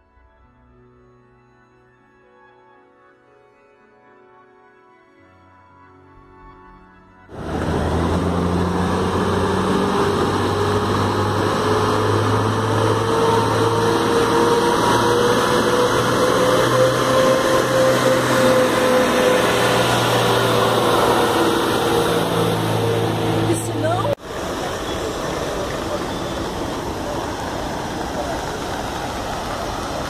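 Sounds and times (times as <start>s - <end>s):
heavy truck engine running: 7.3s - 30.0s.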